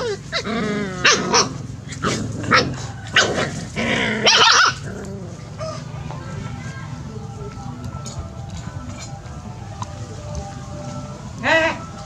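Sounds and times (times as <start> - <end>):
puppies growling and yapping: 0.0 - 6.2
puppy high-pitched cry: 4.2 - 4.9.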